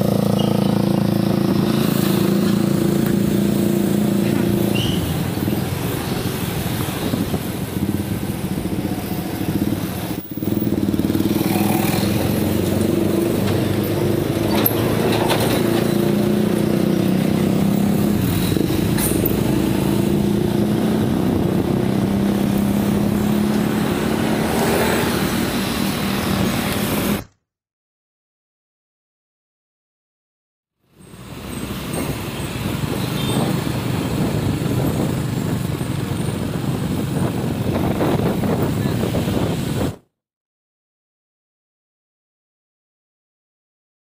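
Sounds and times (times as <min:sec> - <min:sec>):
motorcycle engine running: 0:00.0 - 0:15.0
road noise: 0:00.0 - 0:27.3, 0:30.8 - 0:40.0.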